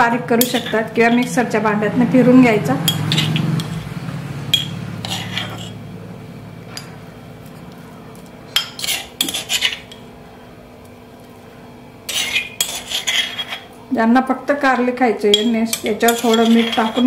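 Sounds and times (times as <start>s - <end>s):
spoon scraping and clinking ceramic: 0.4s - 1.4s, 2.9s - 3.9s, 4.5s - 5.8s, 8.6s - 10.0s, 12.1s - 13.7s, 15.3s - 17.0s.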